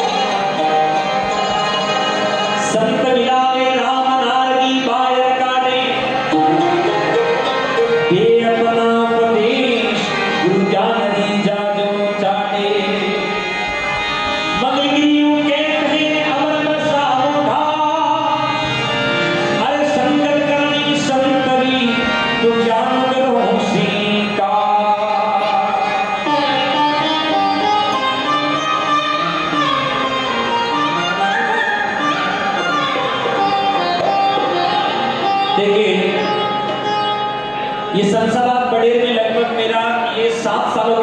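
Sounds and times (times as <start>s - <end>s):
man singing devotional song: 0.0s - 7.0s, 7.9s - 28.3s, 35.2s - 37.0s, 37.9s - 41.0s
harmonium: 0.0s - 41.0s.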